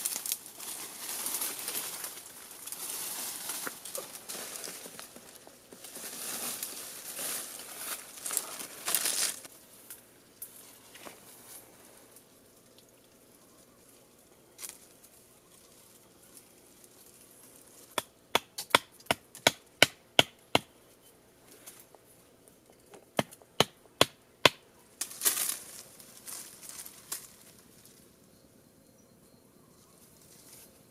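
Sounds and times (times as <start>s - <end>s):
hand tool striking wooden stake: 17.9s - 20.8s, 22.9s - 24.6s.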